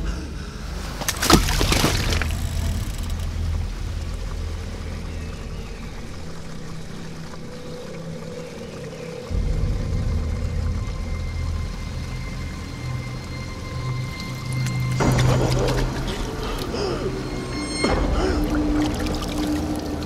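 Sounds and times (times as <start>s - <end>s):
low steady drone: 0.0s - 20.0s
body splashing into stream: 0.9s - 2.8s.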